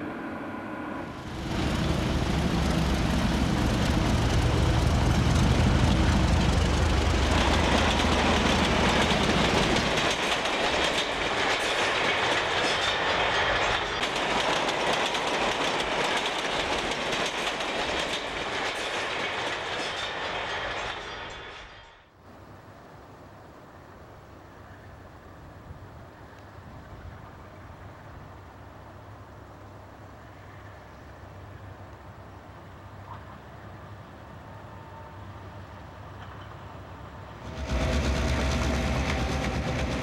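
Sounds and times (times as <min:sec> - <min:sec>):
train passing: 0:00.0 - 0:23.2, 0:27.5 - 0:40.0
wheel-on-rail noise: 0:01.1 - 0:21.8, 0:36.1 - 0:40.0.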